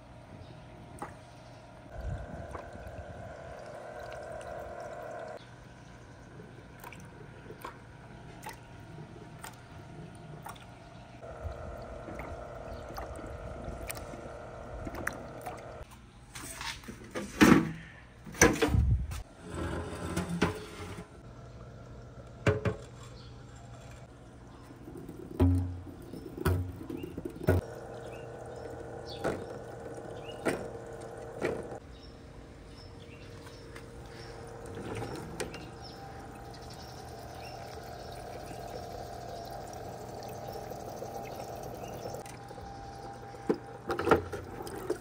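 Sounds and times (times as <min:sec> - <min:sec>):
steady machine hum: 0:00.0 - 0:15.8, 0:19.2 - 0:45.0
water running: 0:01.9 - 0:05.4, 0:10.4 - 0:15.8, 0:24.0 - 0:31.8, 0:33.6 - 0:45.0.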